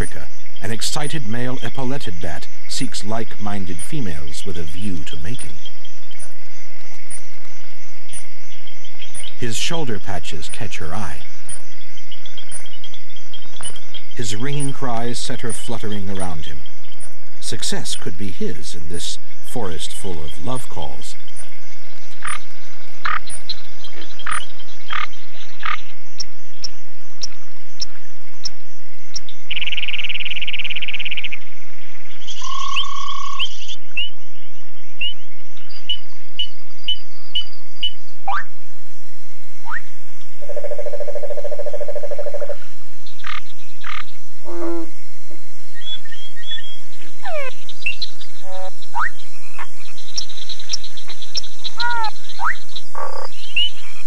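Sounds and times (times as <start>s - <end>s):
frog trilling: 0.0s - 6.4s, 8.1s - 26.0s, 32.2s - 34.2s, 35.8s - 38.6s, 39.6s - 45.0s, 45.8s - 53.8s
frog steady note: 0.0s - 54.0s
frogs chirping: 0.0s - 54.0s
low pulsed frog croak: 21.3s - 31.4s, 32.2s - 34.1s, 35.8s - 38.6s, 39.6s - 45.1s, 47.2s - 53.8s.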